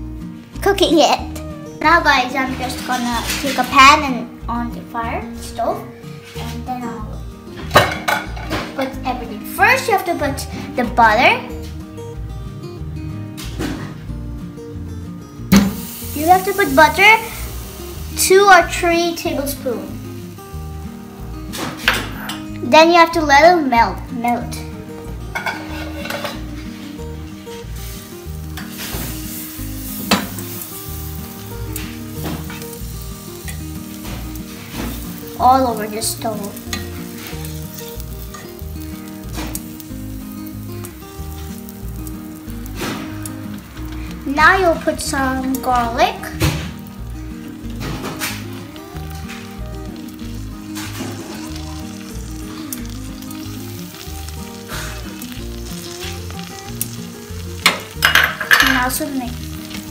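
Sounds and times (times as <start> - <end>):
background music: 0.0 - 59.9
butter sizzling in a hot pan: 15.4 - 23.2, 24.1 - 59.9
tongs scraping and clicking on pan: 25.3 - 26.4.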